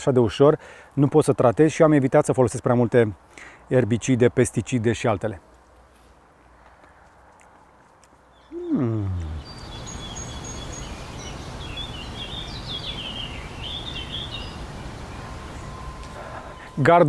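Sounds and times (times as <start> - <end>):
small birds chirping: 7.8 - 16.8.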